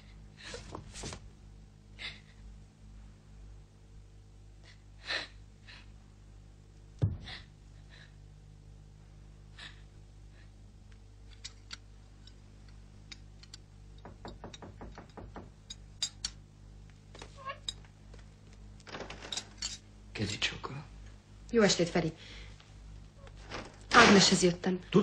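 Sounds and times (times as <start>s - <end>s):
steady low hum: 0.0s - 25.0s
heavy thump: 7.0s - 7.4s.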